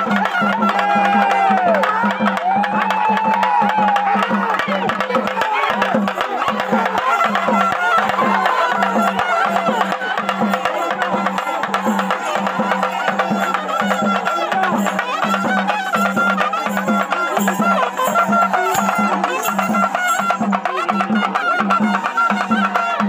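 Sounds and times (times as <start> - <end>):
drum beats: 0.0 - 23.0
sharp percussion strokes: 0.0 - 23.0
reed pipe melody: 4.6 - 23.0.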